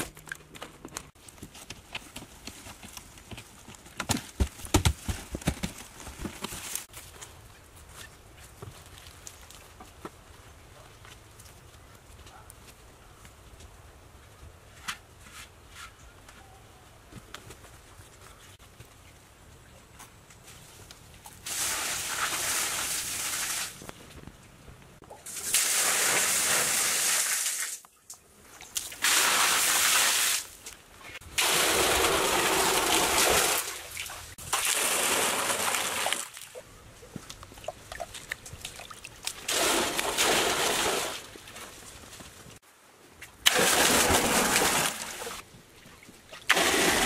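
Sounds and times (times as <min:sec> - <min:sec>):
water pouring and splashing: 0:21.3 - 0:23.9, 0:31.3 - 0:36.6, 0:37.5 - 0:41.9, 0:43.4 - 0:47.0.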